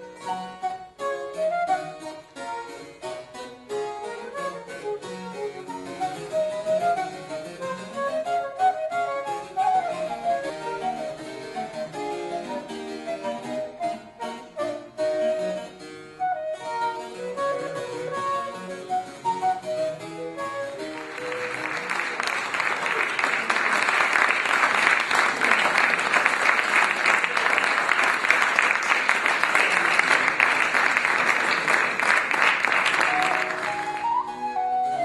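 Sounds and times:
wooden flute: 0.0s - 22.1s, 32.8s - 35.0s
harpsichord playing: 1.8s - 8.2s, 9.4s - 22.6s
audience applause: 20.7s - 34.3s.

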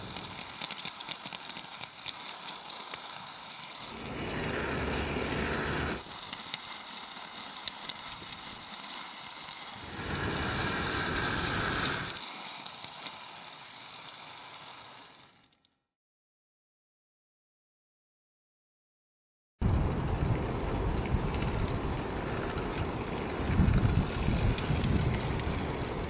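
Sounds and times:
model train wheels clicking on rails: 0.0s - 15.9s, 19.9s - 26.0s
train rumble: 3.8s - 6.4s, 7.3s - 12.2s, 19.6s - 26.0s.

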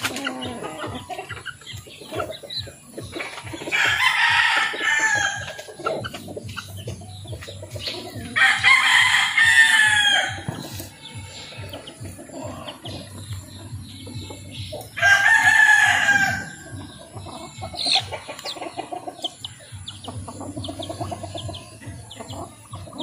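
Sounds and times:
rooster crowing: 3.7s - 5.4s, 8.4s - 10.4s, 15.0s - 16.6s.

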